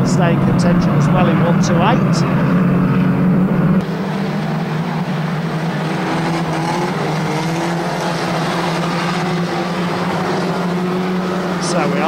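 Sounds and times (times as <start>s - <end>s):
racing car engines droning: 0.0s - 12.0s.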